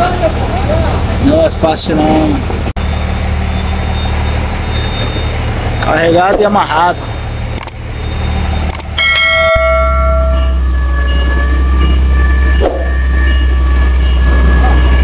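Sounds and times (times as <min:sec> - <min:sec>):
forklift engine droning: 0:00.0 - 0:15.0
bell-like ding chime: 0:09.0 - 0:15.0.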